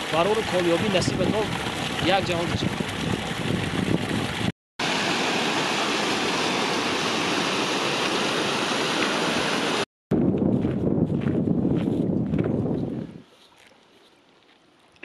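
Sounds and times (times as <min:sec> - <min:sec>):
water rushing: 0:00.0 - 0:09.9.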